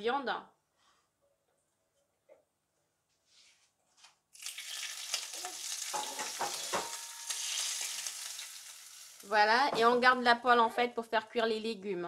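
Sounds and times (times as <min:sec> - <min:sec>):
oil sizzling on meat: 0:04.4 - 0:09.6.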